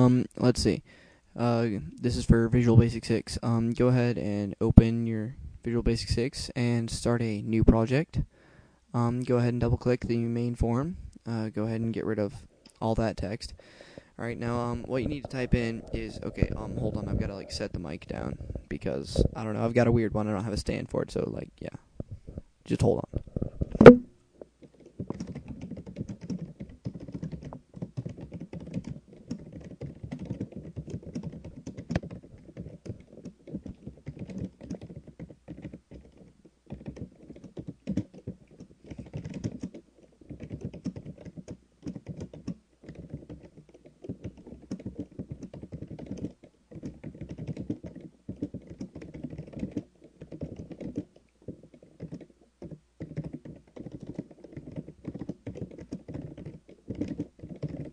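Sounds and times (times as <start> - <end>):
typing on keyboard: 24.6 - 57.9.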